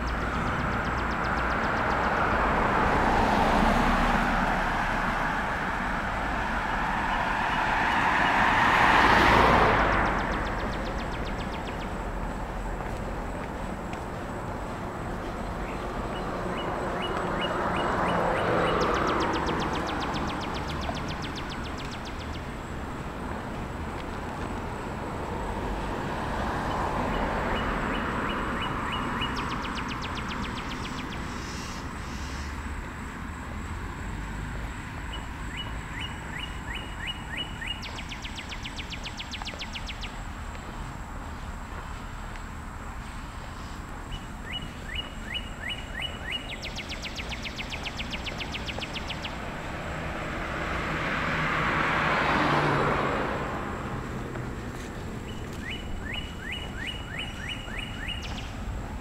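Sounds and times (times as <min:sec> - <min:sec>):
vehicles passing: 0:00.0 - 0:59.0
bird chirping and trilling: 0:55.3 - 0:58.5.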